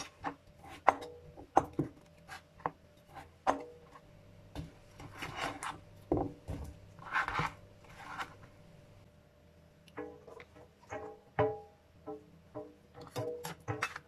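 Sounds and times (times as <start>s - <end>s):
knife scraping through squash: 5.0s - 5.8s, 7.0s - 8.4s.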